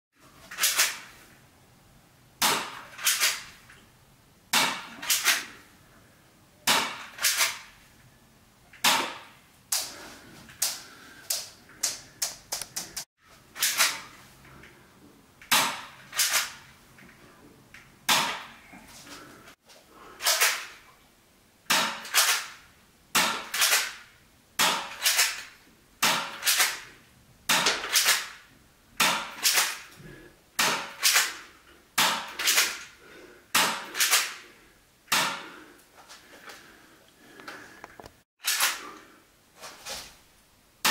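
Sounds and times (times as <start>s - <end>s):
airsoft pistol firing sharp cracks: 4.5s - 5.5s, 8.8s - 9.3s, 18.1s - 18.5s, 21.7s - 22.6s, 23.2s - 24.0s, 24.6s - 26.9s, 27.5s - 28.4s, 29.0s - 29.9s, 30.6s - 32.9s, 33.5s - 34.4s, 38.4s - 38.8s
small clicks: 10.6s - 13.0s.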